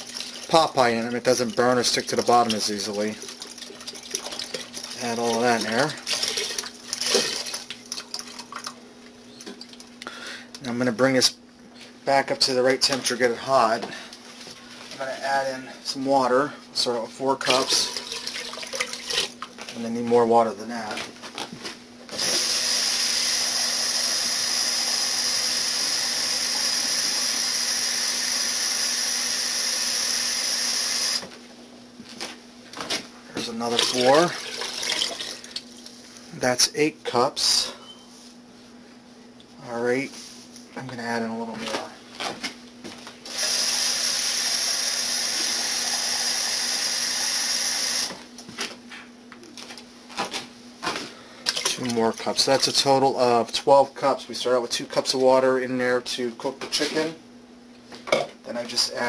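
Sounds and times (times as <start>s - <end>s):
faucet running into measuring cup: 0.0s - 8.7s, 17.5s - 19.4s, 33.7s - 35.6s, 43.3s - 48.1s.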